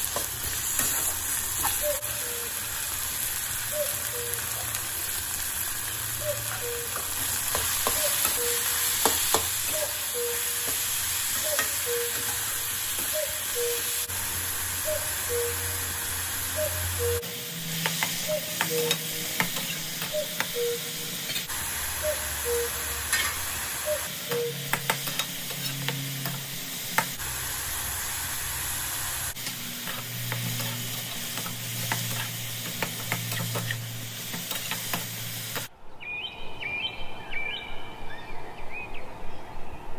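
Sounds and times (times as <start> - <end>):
food sizzling in a pan: 0.0 - 35.7
spatula scraping a pan: 25.1 - 26.3, 29.4 - 34.9.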